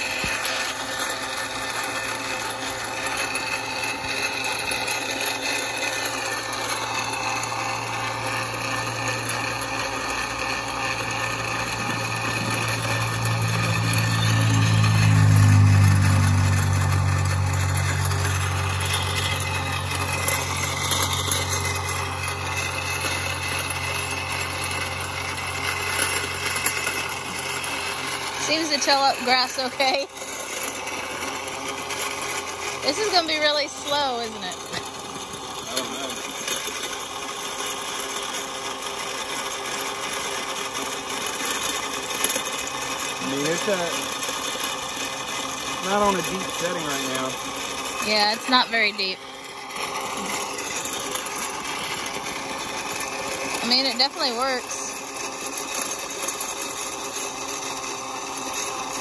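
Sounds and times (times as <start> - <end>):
electric tiller motor whining: 0.0 - 59.0
tines churning soil: 0.0 - 59.0
deeper drone: 10.9 - 30.2.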